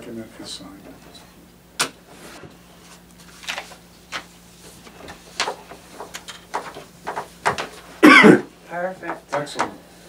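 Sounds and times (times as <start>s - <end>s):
papers rustling: 2.1s - 8.0s, 8.7s - 10.0s.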